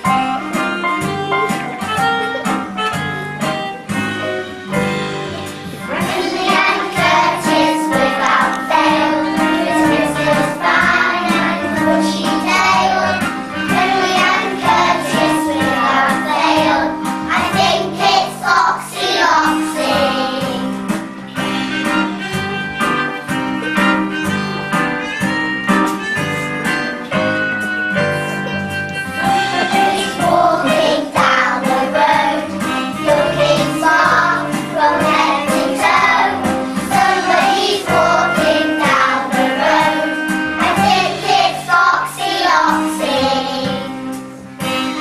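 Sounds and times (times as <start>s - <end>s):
instrumental backing track with beat: 0.0s - 45.0s
children singing: 5.7s - 21.0s, 29.1s - 44.2s.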